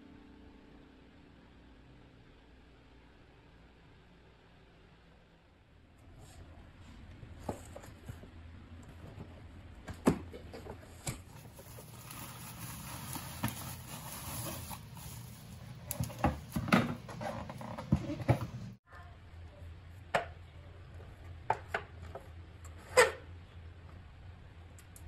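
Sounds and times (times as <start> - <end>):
bubble wrap rustling: 11.3 - 16.6.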